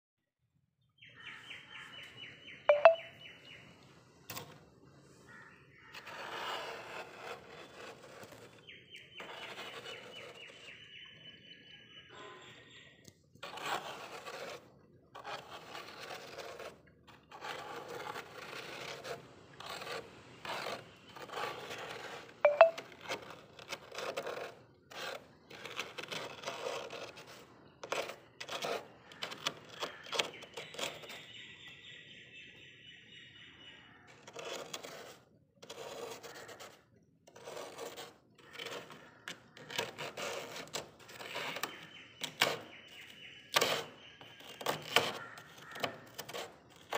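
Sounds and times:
plastic scraper scraping frost: 5.3 - 10.8, 13.4 - 31.3, 34.1 - 46.9.

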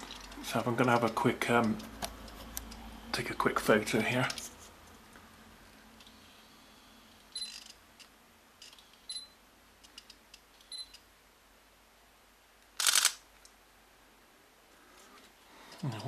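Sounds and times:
camera beeps: 7.3 - 7.7, 9.0 - 9.4, 10.6 - 11.0
faint camera clicks: 12.7 - 13.5
camera shutter firing: 12.8 - 13.3.

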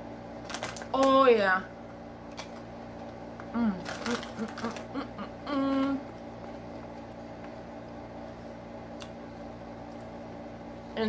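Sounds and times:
low room hum: 0.0 - 11.0
person humming mm: 5.0 - 6.1.

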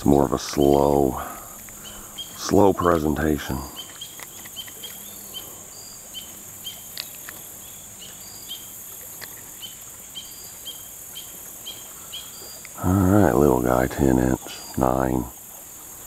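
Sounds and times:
faint clicks: 0.0 - 5.5, 6.2 - 10.0, 12.4 - 12.8
crickets chirping: 0.0 - 16.0
high insect hiss: 0.0 - 16.0.

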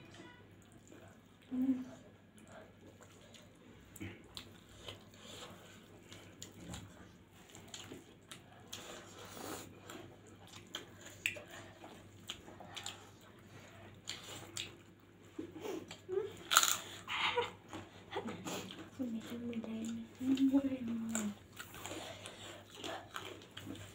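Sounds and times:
chewing and biting: 2.4 - 15.2, 21.0 - 23.9.

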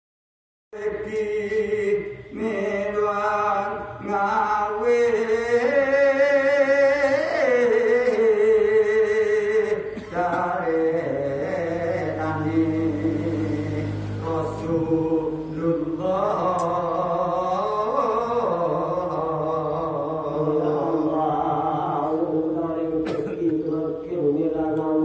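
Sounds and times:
man chanting solo: 10.4 - 25.0.

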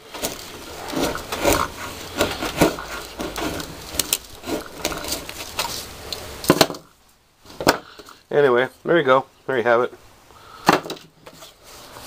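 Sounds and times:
knife scraping wood: 0.0 - 6.8, 10.7 - 12.0.

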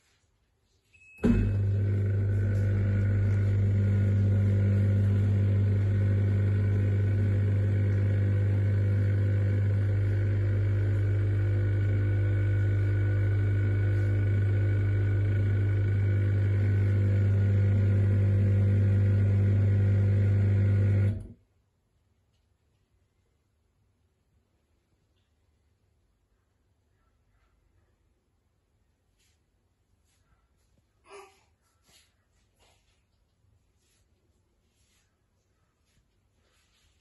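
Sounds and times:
dishwasher pump motor humming: 1.2 - 21.3.

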